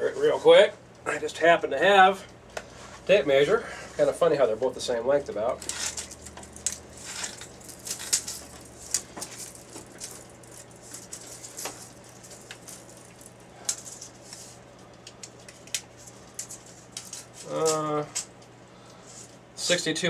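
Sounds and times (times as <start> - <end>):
faint steady hum: 0.0 - 20.0
tape measure clicking and rattling: 5.6 - 18.3.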